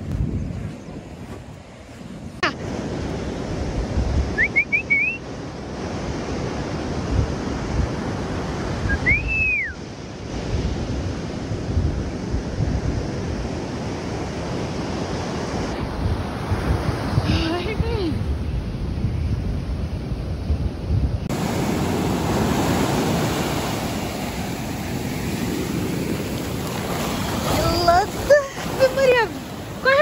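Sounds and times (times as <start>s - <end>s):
wind buffeting microphone: 0.0s - 4.6s, 5.6s - 30.0s
ocean surf: 1.2s - 18.5s, 21.1s - 30.0s
rising whistles: 4.4s - 5.2s, 8.9s - 9.8s.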